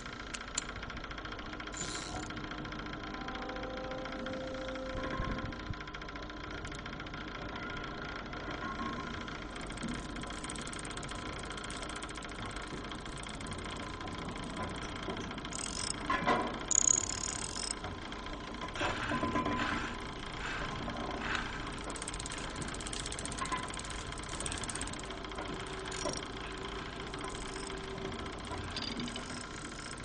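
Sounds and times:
mechanical hum: 0:00.0 - 0:30.0
faint steady tones: 0:21.8 - 0:30.0.

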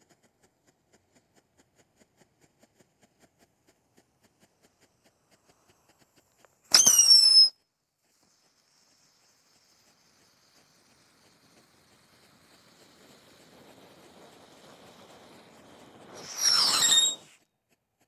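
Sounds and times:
firework crackle: 0:02.7 - 0:17.4
firework whistle: 0:06.7 - 0:07.6, 0:08.4 - 0:17.4.

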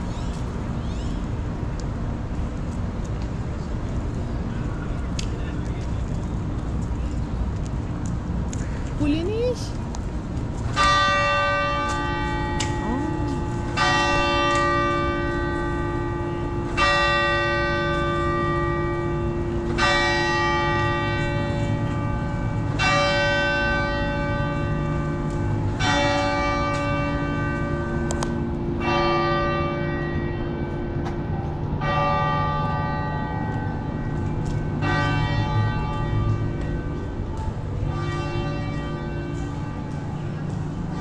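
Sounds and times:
steady low rumble: 0:00.0 - 0:16.9, 0:17.6 - 0:41.0
church bell tolling: 0:10.8 - 0:41.0.

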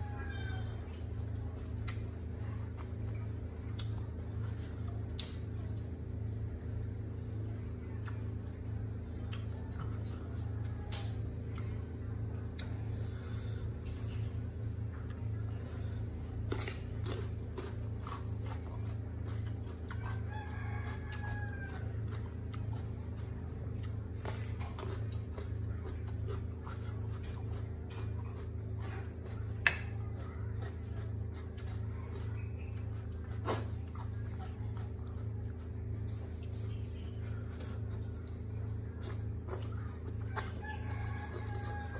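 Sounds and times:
rooster crowing: 0:00.0 - 0:01.0, 0:20.0 - 0:22.2, 0:40.3 - 0:41.9
chewing and crunching: 0:00.0 - 0:41.9.

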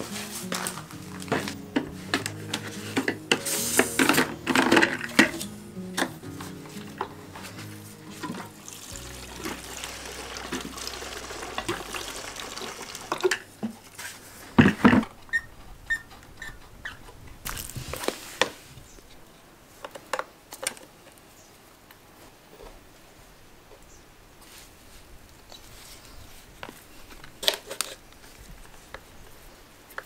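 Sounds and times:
background music: 0:00.0 - 0:13.4
fuel pouring from can: 0:08.5 - 0:13.5.

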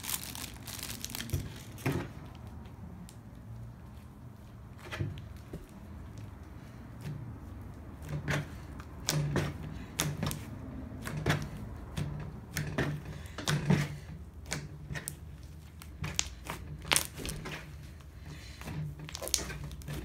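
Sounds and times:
slime crackling and popping: 0:00.0 - 0:01.8, 0:15.8 - 0:17.4, 0:19.1 - 0:20.0.

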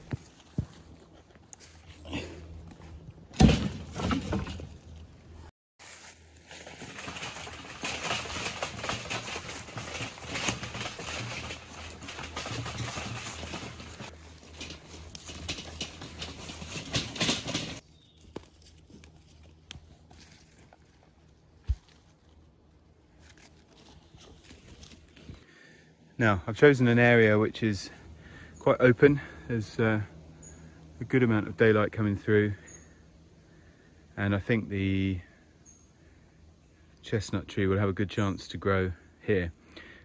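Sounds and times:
footsteps in dry leaves: 0:05.8 - 0:16.9, 0:17.8 - 0:25.4.

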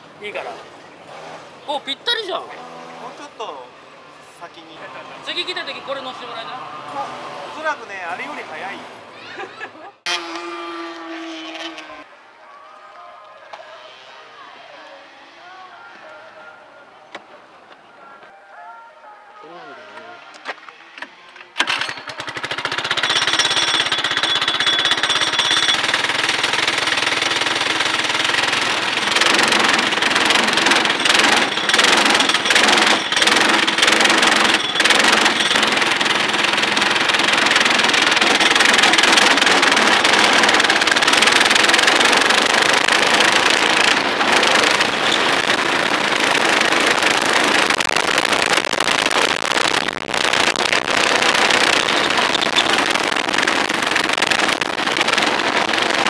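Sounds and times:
kart engine revving: 0:01.0 - 0:03.4, 0:04.0 - 0:09.3, 0:10.0 - 0:12.1, 0:21.6 - 0:56.0.

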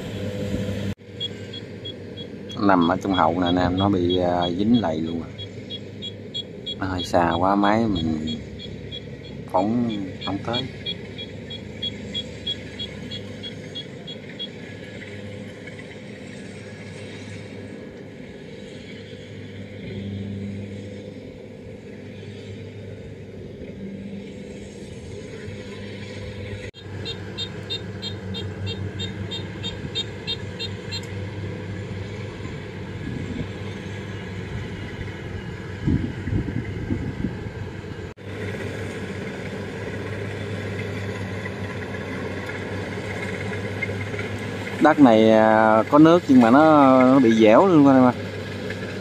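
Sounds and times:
combine harvester engines humming: 0:00.0 - 0:49.0
fast high-pitched ticking: 0:01.2 - 0:14.7, 0:26.8 - 0:31.1.

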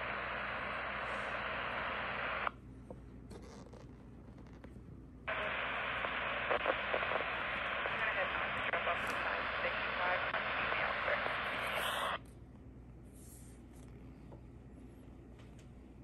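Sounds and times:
radio static: 0:00.0 - 0:02.5, 0:05.3 - 0:12.2.

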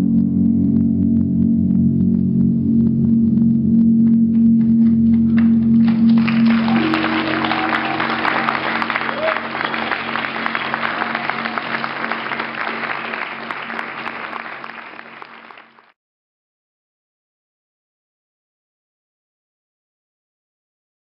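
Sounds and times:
held musical drone: 0:00.0 - 0:15.6
audience applause: 0:04.6 - 0:16.0.

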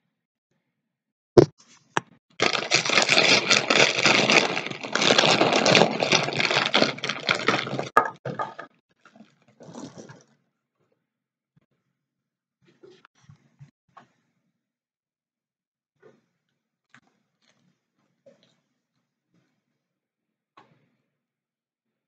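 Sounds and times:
plastic snack bag crinkling: 0:02.4 - 0:10.2.

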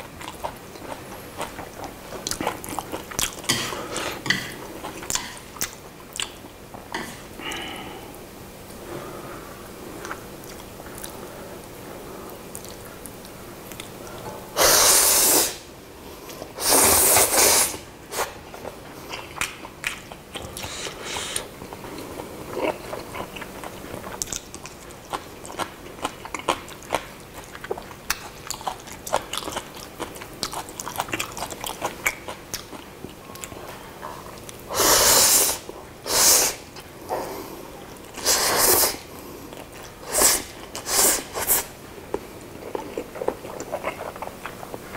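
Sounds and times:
person slurping noodles: 0:14.6 - 0:15.6, 0:16.6 - 0:18.3, 0:34.7 - 0:36.6, 0:38.2 - 0:39.0.

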